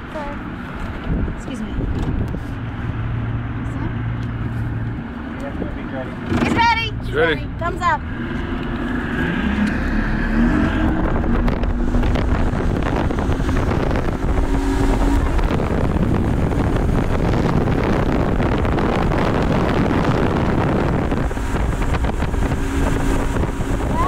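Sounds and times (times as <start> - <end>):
outboard motors running: 0.0 - 24.0
wind buffeting microphone: 0.0 - 24.0
rush of churning wake: 9.9 - 24.0.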